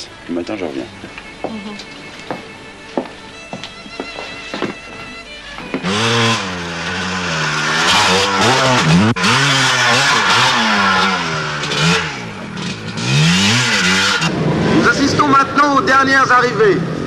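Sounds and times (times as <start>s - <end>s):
motorcycle engine revving: 5.6s - 15.7s.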